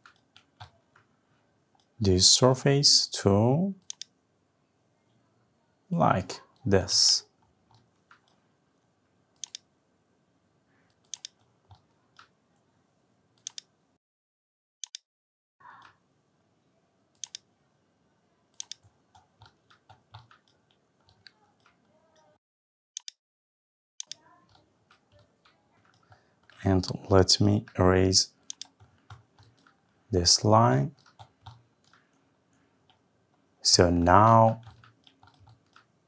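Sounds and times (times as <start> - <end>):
mouse and keyboard clicks: 9.4 - 9.7, 10.9 - 12.3, 13.4 - 13.7, 17.2 - 17.5, 18.6 - 22.3, 24.0 - 26.6, 28.4 - 29.9.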